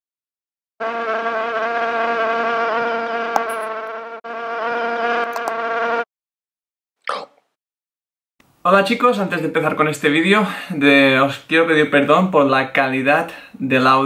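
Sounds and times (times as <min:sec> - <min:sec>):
fly buzzing: 0:00.8 - 0:06.1.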